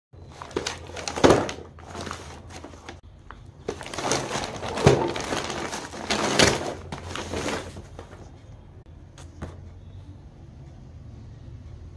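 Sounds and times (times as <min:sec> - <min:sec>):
paper bag crumpling and tearing: 0:00.3 - 0:03.0, 0:03.7 - 0:08.1.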